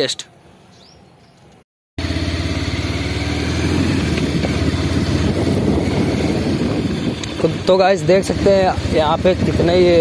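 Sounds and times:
motorcycle engine running: 2.0 - 10.0.

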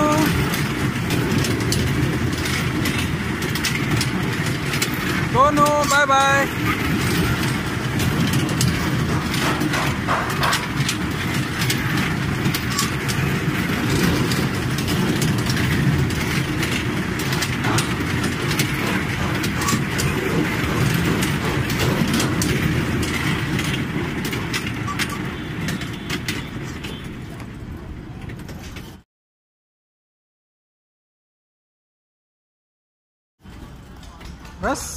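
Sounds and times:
clicks and rattles: 0.0 - 27.6
kiddie train rumbling: 0.0 - 29.0, 33.4 - 34.9.

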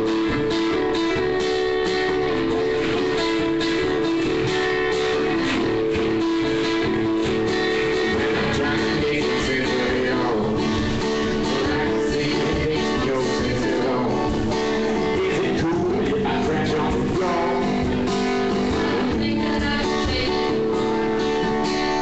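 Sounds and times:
guitar chords strummed: 0.0 - 22.0.

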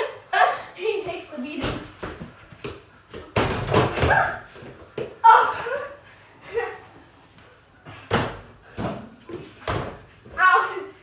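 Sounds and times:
children shouting and laughing: 5.2 - 7.0, 10.3 - 11.0.

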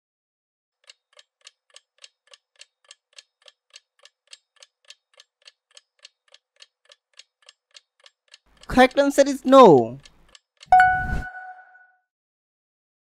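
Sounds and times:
clock ticking: 0.8 - 10.9.

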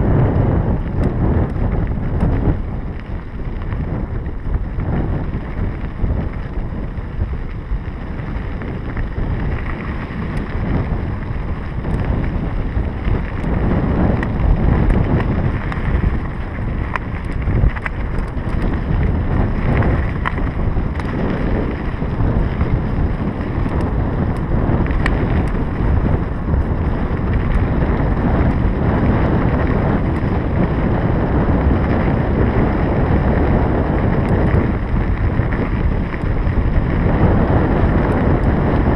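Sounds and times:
bike clicks and rattles: 0.0 - 38.9
wind on microphone: 0.0 - 38.9
tyres crunching on gravel: 1.8 - 30.4.

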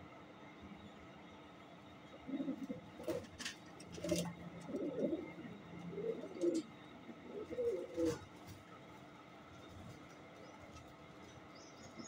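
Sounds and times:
pigeons cooing: 2.1 - 8.3.

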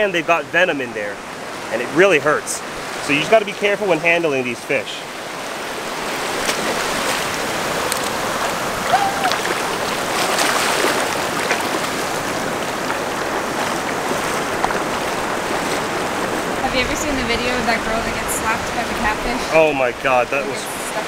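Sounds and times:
surf washing over sand: 0.0 - 21.0.

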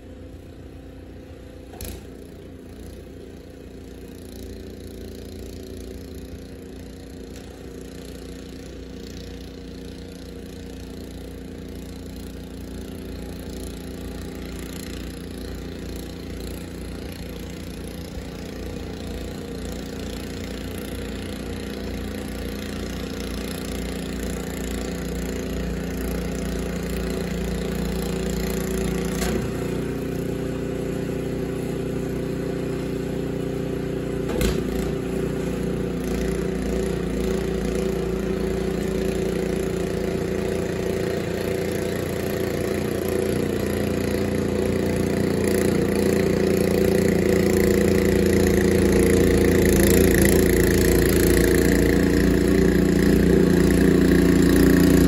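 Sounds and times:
snowblower engine running: 0.0 - 55.0.

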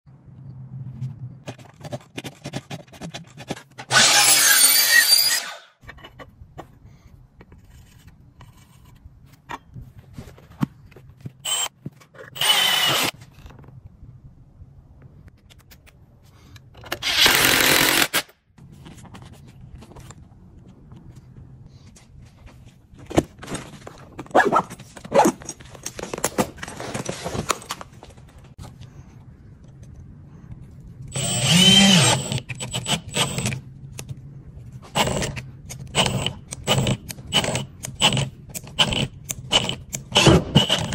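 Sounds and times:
sharp knocks and scrapes: 1.0 - 4.0
cordless drill running: 3.9 - 5.7, 11.4 - 11.7, 12.4 - 13.1, 31.1 - 33.5, 36.0 - 40.9
clicks and handling noises: 5.8 - 12.4, 15.0 - 17.0, 18.6 - 31.1.

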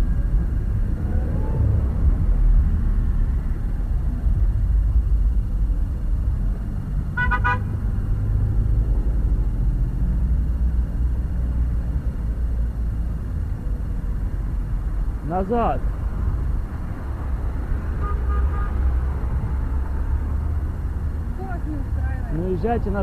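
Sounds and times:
low rumble: 0.0 - 15.2
car horn short toots: 7.2 - 7.7.

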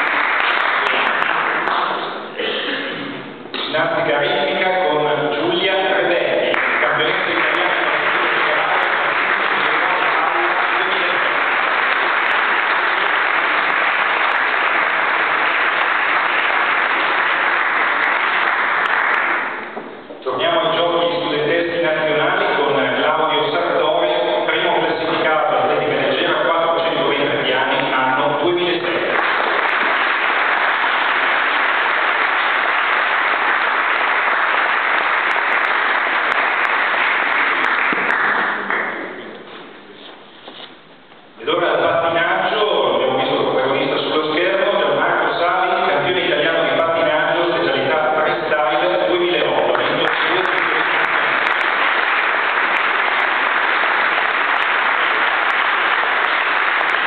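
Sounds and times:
audience applauding: 0.0 - 2.4, 6.4 - 19.8, 28.6 - 39.4, 48.6 - 57.0.

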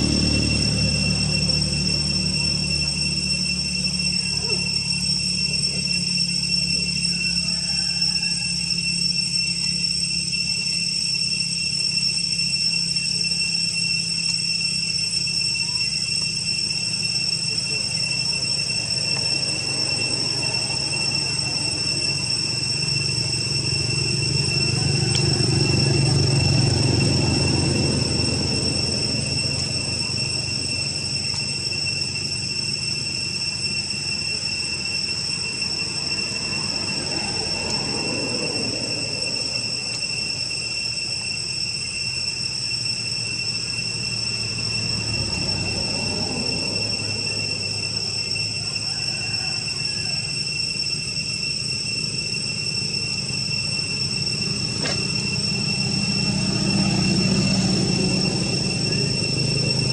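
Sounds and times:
low rumble: 0.0 - 6.8
insects droning: 0.0 - 59.9.

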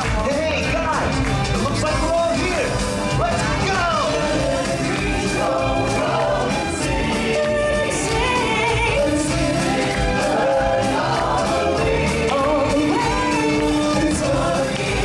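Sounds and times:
amplified backing music with beat: 0.0 - 15.0
choir singing: 3.9 - 15.0.

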